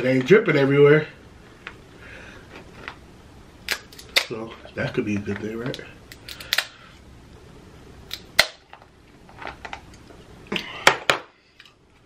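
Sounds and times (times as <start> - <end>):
lobster shell cracking: 6.1 - 6.8.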